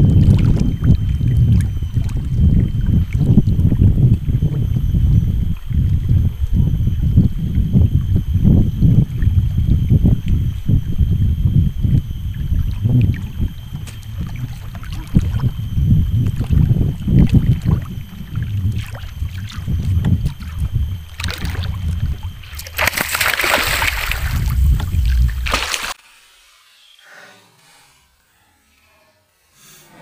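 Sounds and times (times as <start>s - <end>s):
wind and water rumble: 0.0s - 26.0s
fish thrashing splashing: 16.3s - 26.0s.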